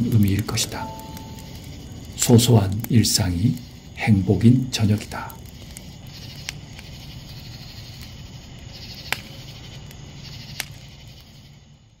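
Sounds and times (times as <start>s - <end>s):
wood fire crackling: 0.0s - 12.0s
sharp pops: 9.0s - 9.4s.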